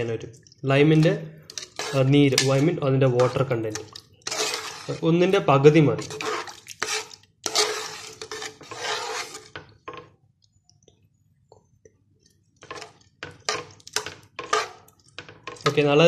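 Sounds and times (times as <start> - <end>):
metal ladle scraping pot: 0.9 - 10.1, 12.6 - 16.0.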